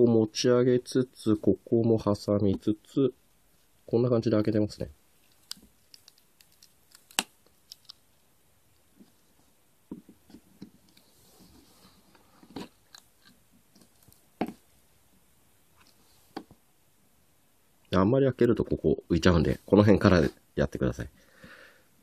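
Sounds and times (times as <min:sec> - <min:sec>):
adhesive tape peeling: 0:05.3 - 0:08.0.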